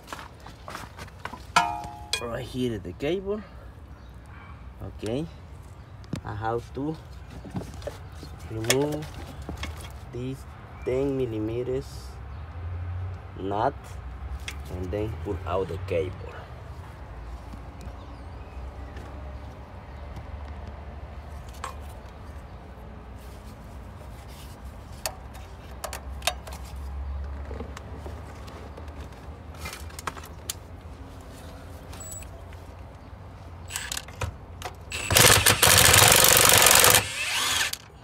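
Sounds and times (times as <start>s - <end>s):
impact wrench running: 33.7s - 34.3s, 34.9s - 37.9s.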